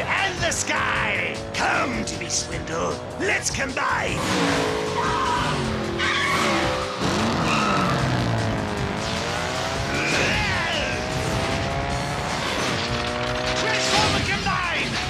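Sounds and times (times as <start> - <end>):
background music: 0.0 - 15.0
cartoon race car engine revving: 0.0 - 15.0
tyres screeching: 4.2 - 8.4.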